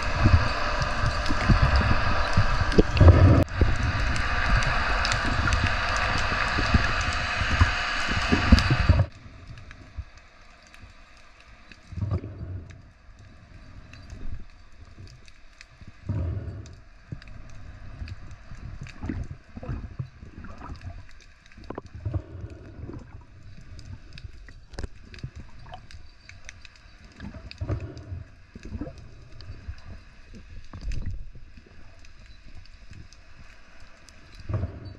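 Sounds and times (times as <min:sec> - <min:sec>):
steady hiss: 0:00.0 - 0:24.4
underwater whooshes and gurgles: 0:00.0 - 0:34.9
small clicks: 0:01.0 - 0:34.9.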